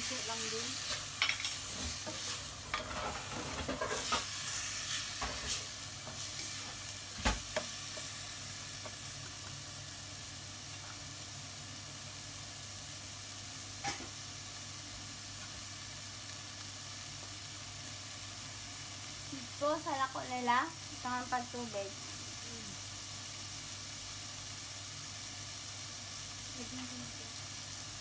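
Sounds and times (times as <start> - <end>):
food sizzling in frying pan: 0.0 - 28.0
spatula scraping and knocking pan: 0.8 - 8.2.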